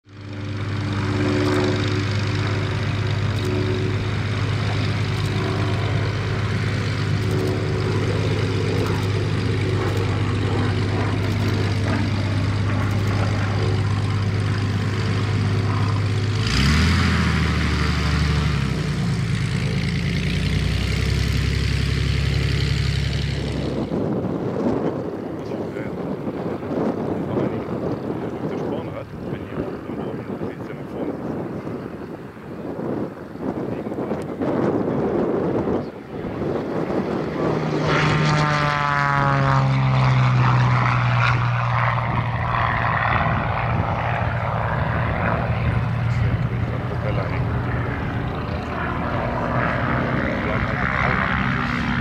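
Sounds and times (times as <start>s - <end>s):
propeller plane engine running: 0.0s - 52.0s.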